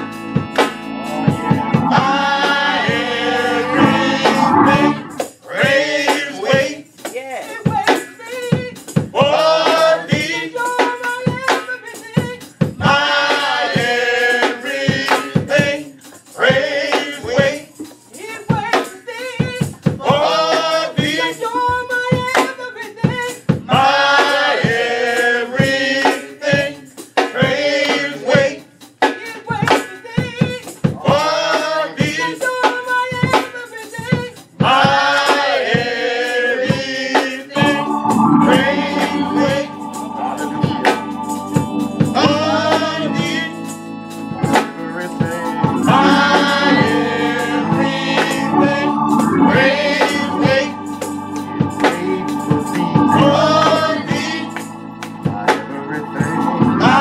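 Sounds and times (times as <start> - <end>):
held organ chord: 0.0 - 5.3, 37.6 - 57.0
gospel group singing in harmony: 0.0 - 57.0
hand clapping: 54.6 - 55.2.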